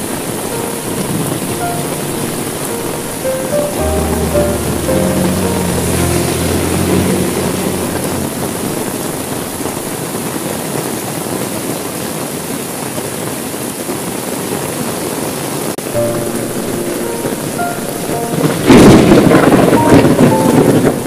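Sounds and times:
soft held music notes: 0.0s - 10.2s
low hum: 0.0s - 10.4s
heavy rain: 0.0s - 21.0s.

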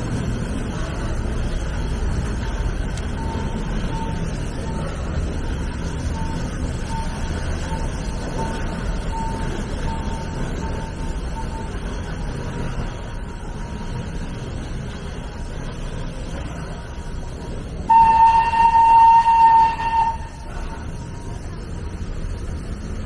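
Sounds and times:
steady low rumble: 0.0s - 23.0s
faint repeating beep: 1.6s - 14.3s
steam whistle blast: 17.8s - 20.9s.

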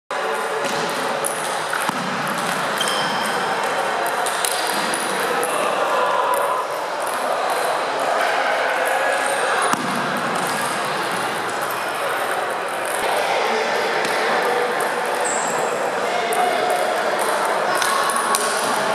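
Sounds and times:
murmur of voices: 0.1s - 18.9s.

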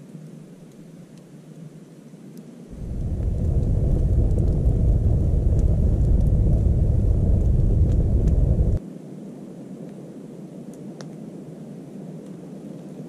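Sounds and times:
fire crackling: 2.7s - 8.8s
fire flames rumbling: 2.7s - 8.8s.

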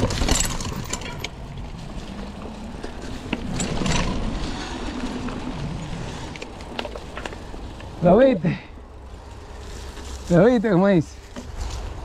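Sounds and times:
bike knocks and rattles: 0.0s - 7.5s, 11.2s - 12.0s.

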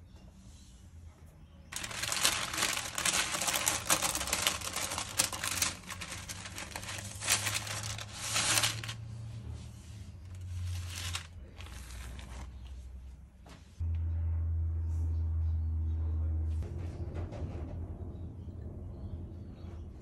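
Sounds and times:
baking parchment rustling: 1.7s - 13.1s.

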